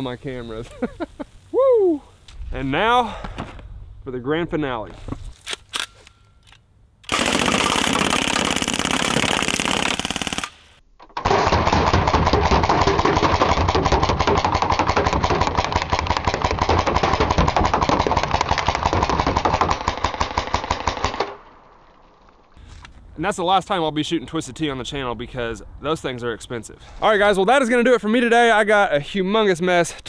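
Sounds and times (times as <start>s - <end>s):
bb gun firing bursts: 7.0s - 21.4s
pellets hitting metal cans: 11.2s - 19.5s.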